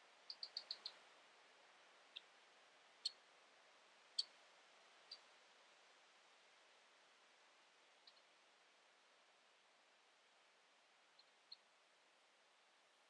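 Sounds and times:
faint steady hiss: 0.0 - 13.0
small bird chirping: 0.3 - 1.0, 4.2 - 4.4, 5.1 - 5.3, 8.0 - 8.3, 11.1 - 11.7.

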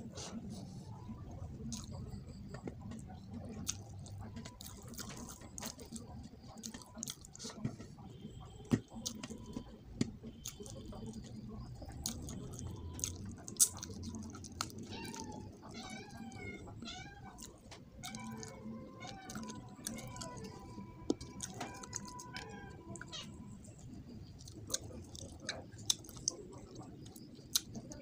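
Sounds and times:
chewing and lip-smacking: 1.2 - 28.0
cat meowing: 14.8 - 23.5.

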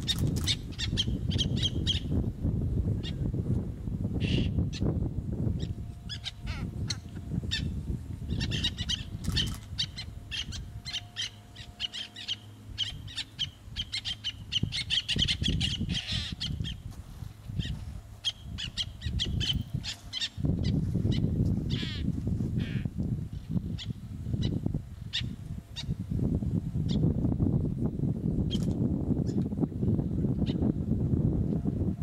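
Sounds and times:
terns calling: 8.3 - 16.8.

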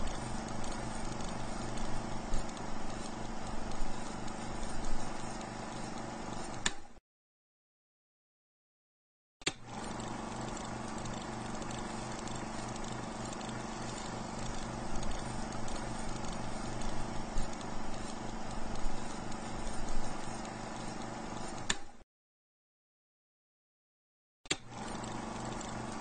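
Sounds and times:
film projector mechanical clatter: 0.0 - 6.9, 9.5 - 21.9, 24.5 - 26.0.

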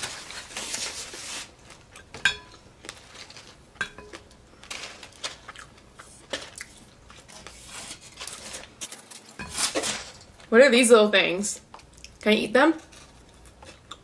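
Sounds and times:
styrofoam rustling and scraping: 0.0 - 1.8, 4.6 - 5.5, 7.3 - 10.2.

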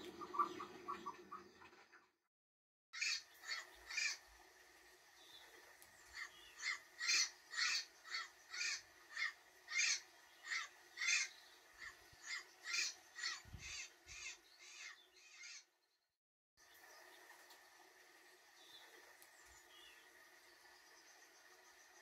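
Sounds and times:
parrot squawking: 3.0 - 4.2, 6.2 - 15.6.

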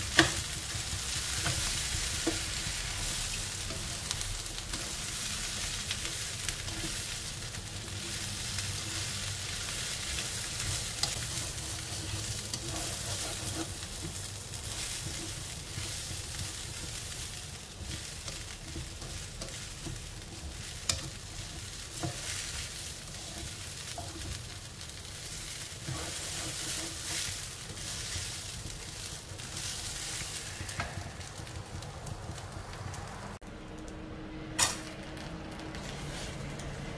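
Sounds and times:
spatula scraping a wok: 0.0 - 31.6, 35.7 - 36.9
food sizzling in a wok: 0.0 - 33.4.

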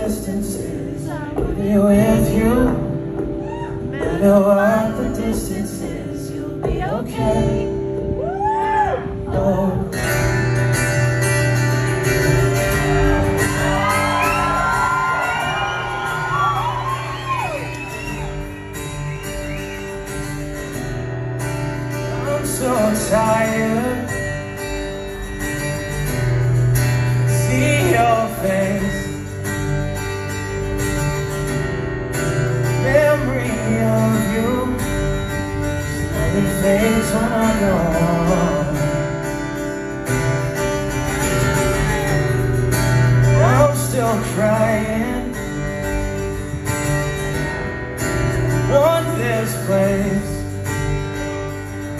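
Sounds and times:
person singing: 0.0 - 10.3
acoustic guitar strumming: 0.0 - 51.9.

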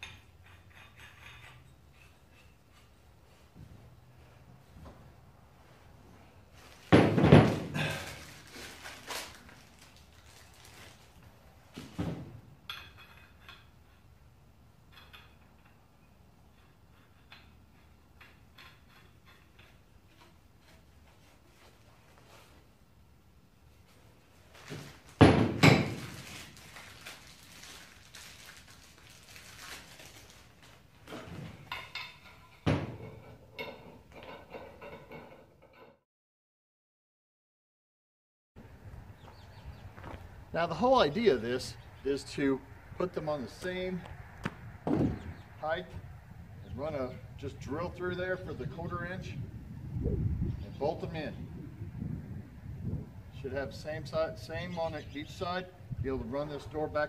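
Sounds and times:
metal parts clinking: 0.0 - 2.9
packaging rustling: 7.9 - 11.2, 25.9 - 30.9.

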